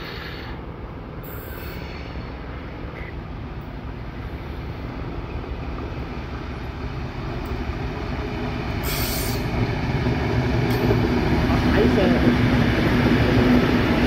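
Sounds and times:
train rumble: 0:00.0 - 0:14.0
hiss burst: 0:08.8 - 0:09.5.

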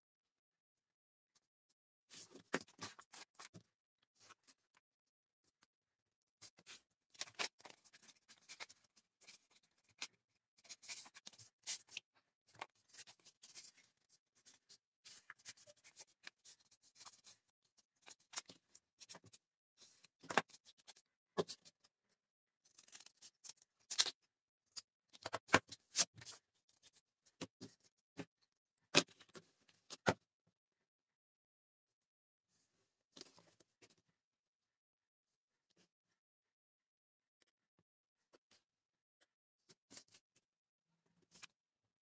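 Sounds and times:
paper rustling and crinkling: 0:06.5 - 0:17.4.

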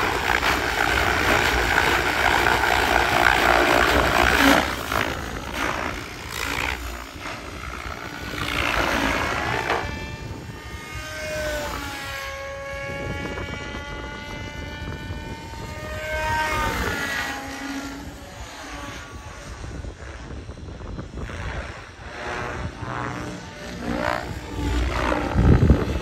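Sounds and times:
helicopter drive whining: 0:00.0 - 0:26.0
model helicopter rotor whooshing: 0:00.0 - 0:26.0.

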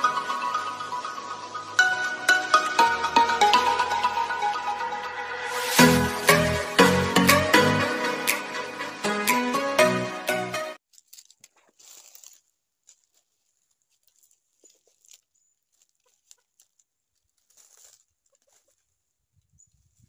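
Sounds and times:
intro music: 0:00.0 - 0:10.8
footsteps crunching in dry leaves: 0:05.5 - 0:06.6, 0:10.8 - 0:18.9.

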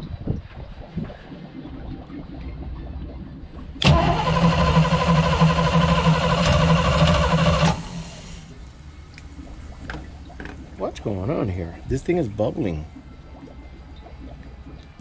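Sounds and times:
starter cranking boat engine: 0:03.8 - 0:08.5.

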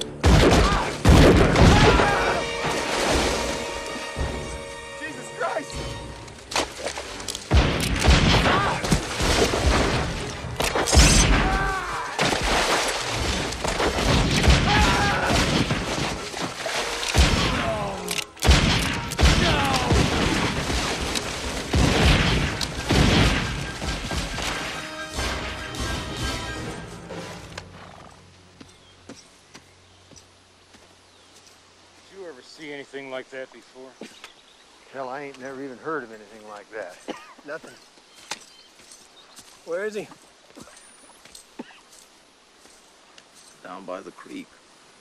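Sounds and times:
dramatic music: 0:00.0 - 0:11.5, 0:14.4 - 0:27.6
gunshots: 0:00.2 - 0:02.2, 0:07.5 - 0:16.3, 0:17.0 - 0:26.6
booming blasts: 0:00.2 - 0:02.6, 0:07.5 - 0:16.3, 0:17.2 - 0:26.7.

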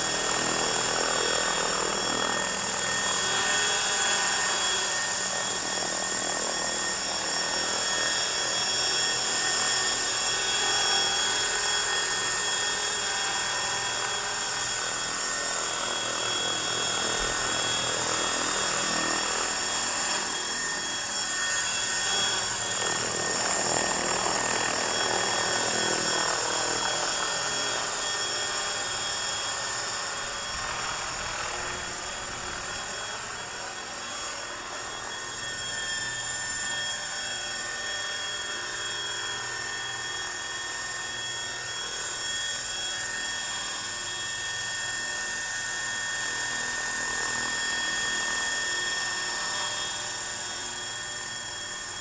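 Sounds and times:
rc helicopter motor whine: 0:00.0 - 0:52.0
rotor blades whirring: 0:00.1 - 0:37.3.

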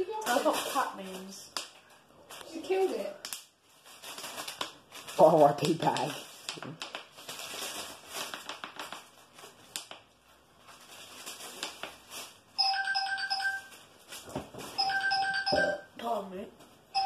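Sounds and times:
paper bag crinkling: 0:03.6 - 0:12.6
electronic ringtone beeps: 0:12.6 - 0:13.7, 0:14.8 - 0:15.9.

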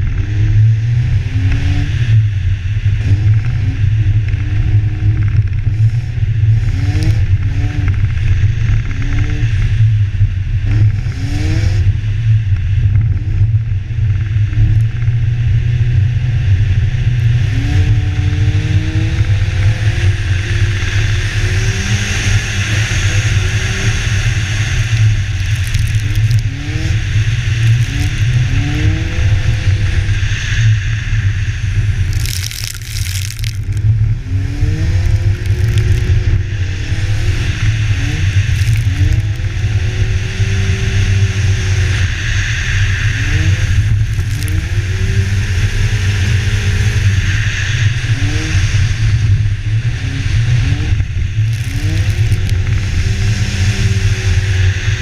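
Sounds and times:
car engine revving: 0:17.2 - 0:54.8.

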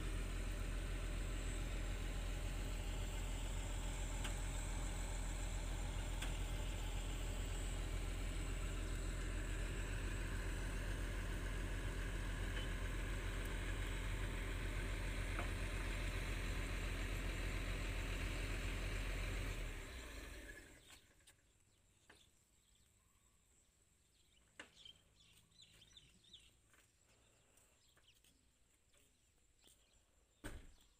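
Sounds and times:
excavator diesel engine running: 0:00.0 - 0:21.0.

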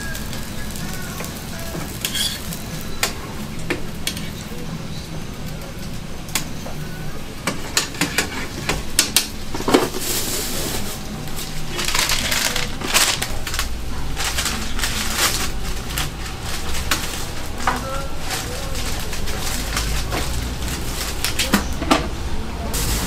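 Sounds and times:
scraping on flat-top griddle: 0:01.7 - 0:03.4, 0:07.5 - 0:13.4.

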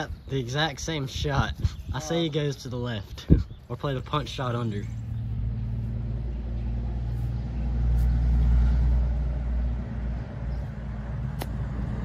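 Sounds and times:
low rumble: 0:04.1 - 0:12.0.

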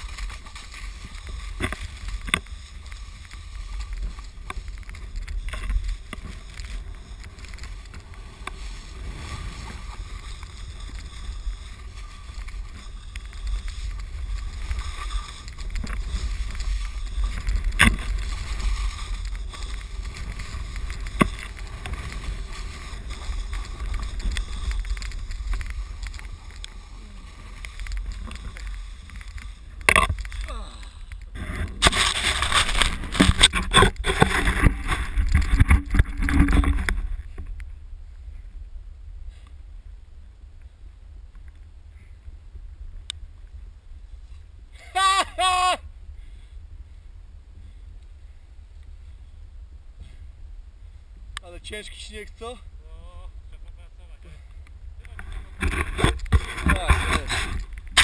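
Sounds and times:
snowboard scraping over snow: 0:00.0 - 0:37.5, 0:55.2 - 0:58.0
wind rumble on microphone: 0:00.0 - 0:58.0.

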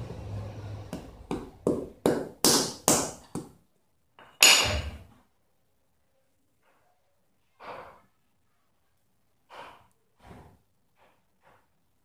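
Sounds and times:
hatchet tapping plum stone: 0:00.9 - 0:03.6.

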